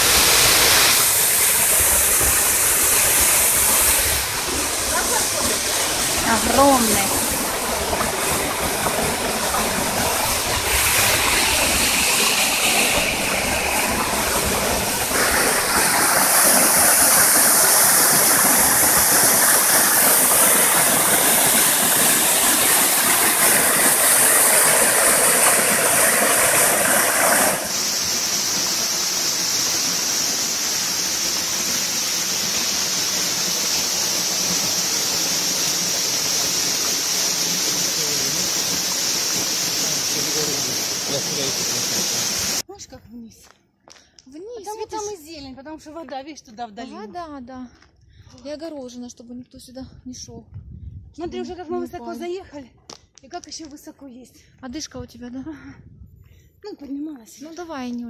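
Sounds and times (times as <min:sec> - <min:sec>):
waterfall rushing over rock: 0:00.0 - 0:42.6
stream running over stones: 0:00.0 - 0:42.7.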